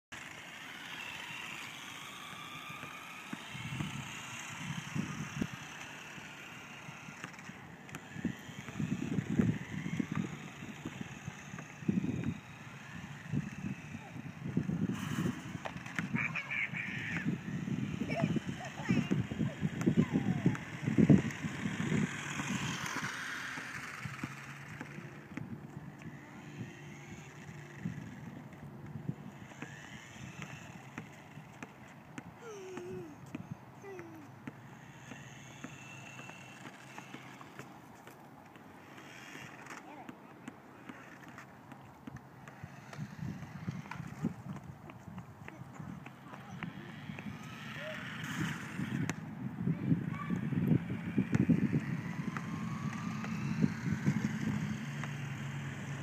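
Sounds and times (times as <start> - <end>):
toy truck motor whine: 0.2 - 31.5, 32.4 - 37.6, 38.8 - 39.9, 40.8 - 41.4, 42.5 - 44.7, 45.8 - 49.1, 49.8 - 56.0
wind buffeting microphone: 3.5 - 23.2, 42.5 - 56.0.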